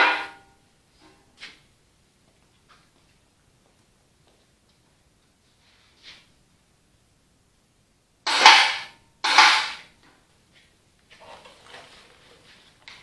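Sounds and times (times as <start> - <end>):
loud metallic clanks: 0.0 - 0.5, 8.3 - 9.9
faint shuffling and handling: 0.9 - 6.5, 10.3 - 13.0.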